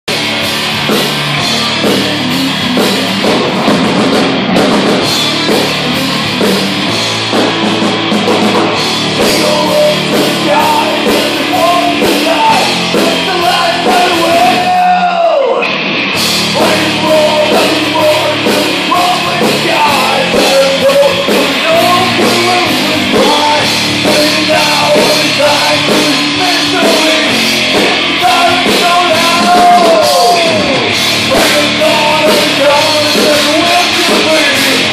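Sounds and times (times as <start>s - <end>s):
distorted electric guitar: 0.0s - 34.9s
drums: 0.0s - 34.9s
man singing: 9.1s - 15.7s, 16.5s - 34.9s.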